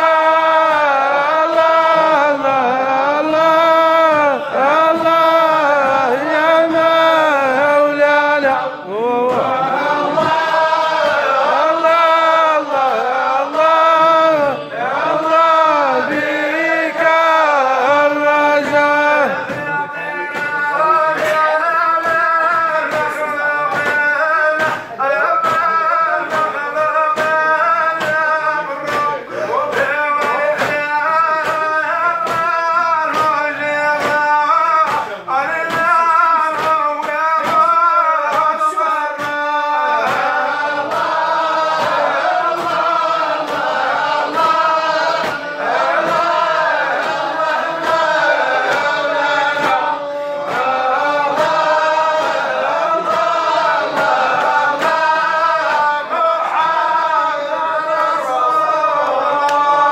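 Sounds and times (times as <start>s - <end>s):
men singing a devotional chant: 0.0s - 59.9s
percussive beat: 0.0s - 59.9s.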